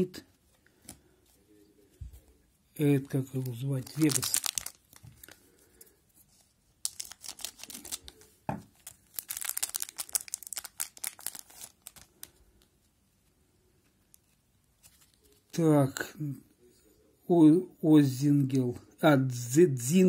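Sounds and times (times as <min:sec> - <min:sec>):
wrapper tearing and crinkling: 0:03.0 - 0:05.4, 0:06.8 - 0:12.3.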